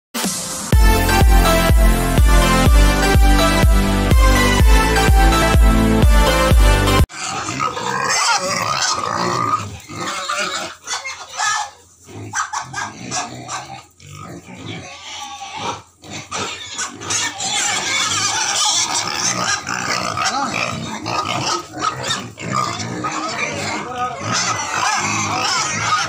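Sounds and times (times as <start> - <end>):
pigs making noise: 7.1 - 26.0.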